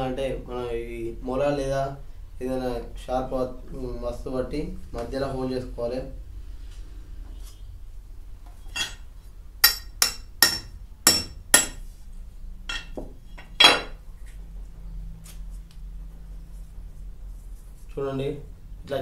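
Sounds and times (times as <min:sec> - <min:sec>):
metal tool striking iron rod: 0:08.7 - 0:09.0, 0:09.6 - 0:11.8, 0:12.7 - 0:13.0.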